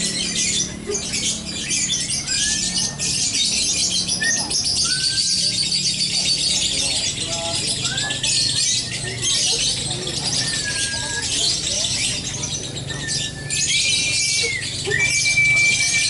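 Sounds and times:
rising bird whistles: 0.0 - 6.6, 10.2 - 12.2, 12.8 - 16.0
songbirds chattering: 0.0 - 16.0.

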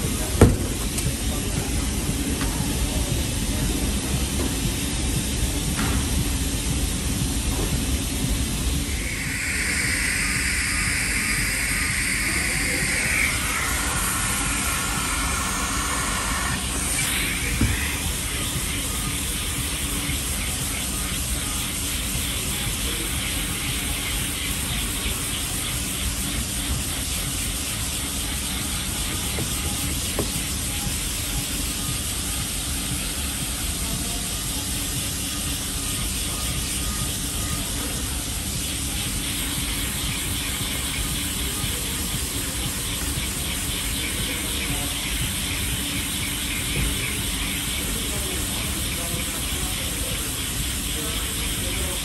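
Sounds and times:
sander running: 6.9 - 52.0
dust extraction hose rushing: 8.8 - 20.5.

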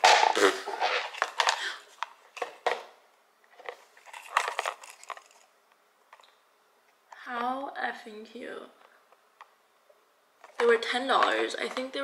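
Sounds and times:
packaging crinkling: 0.0 - 2.8, 3.6 - 5.6.

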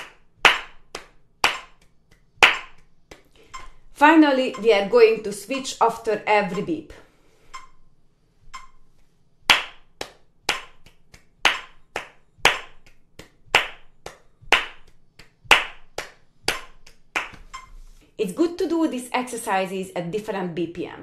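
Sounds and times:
hand clapping: 0.0 - 3.7, 9.5 - 17.9
metronome beeps: 4.4 - 4.9, 6.5 - 6.8, 7.5 - 7.8, 8.6 - 8.8.

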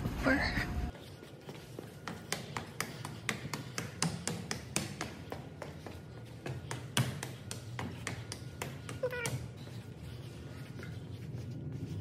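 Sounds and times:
footsteps climbing hard stairs: 1.4 - 10.2.

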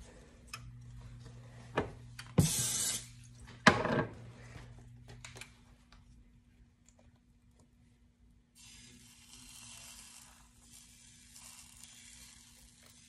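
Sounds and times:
batter sputtering in squeeze bottle: 8.6 - 13.0.

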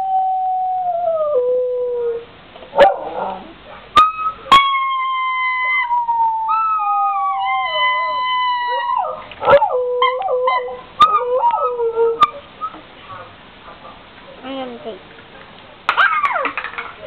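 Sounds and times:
dog howling: 2.8 - 12.4.

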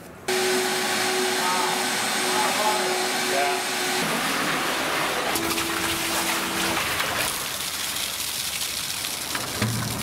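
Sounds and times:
liquid pouring and splashing: 5.3 - 10.0.

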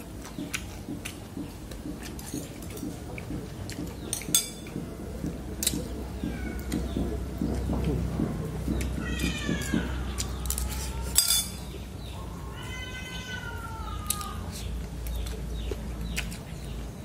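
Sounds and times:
cat meowing: 6.2 - 6.8, 8.9 - 11.3, 12.4 - 14.5
chopsticks clinking against bowl: 10.5 - 11.7.

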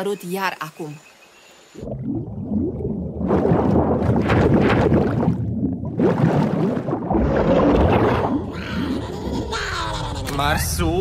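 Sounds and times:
bubbling and gurgling: 1.8 - 10.2.

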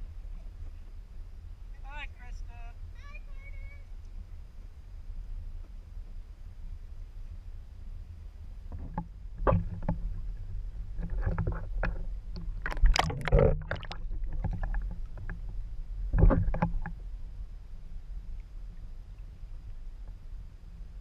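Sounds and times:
steady low rumble: 0.0 - 21.0
paddle strokes splashing water: 8.9 - 17.0.

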